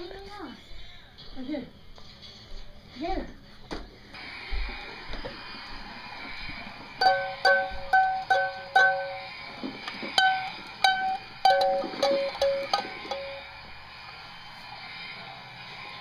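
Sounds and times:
toy electronic chime tune: 10.2 - 13.5.

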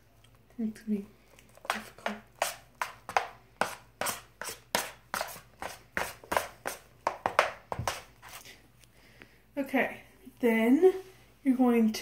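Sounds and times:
utensil stirring slime in bowl: 1.4 - 8.5.

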